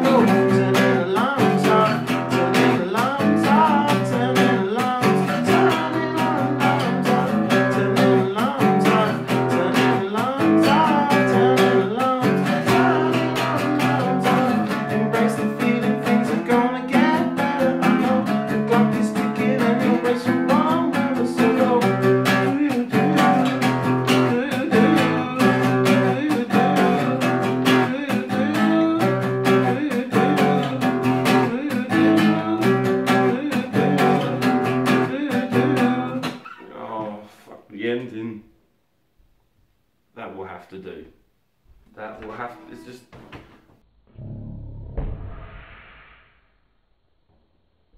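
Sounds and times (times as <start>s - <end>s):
acoustic guitar strumming: 0.0s - 37.2s.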